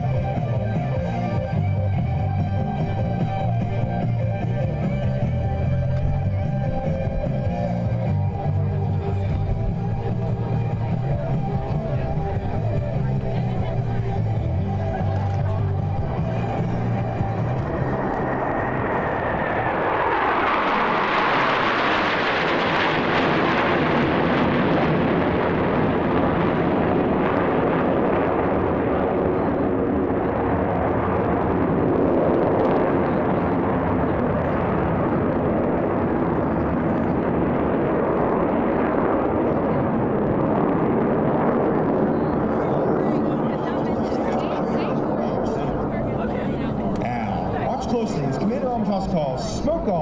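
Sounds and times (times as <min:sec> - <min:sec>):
jets flying over: 0:00.0 - 0:50.0.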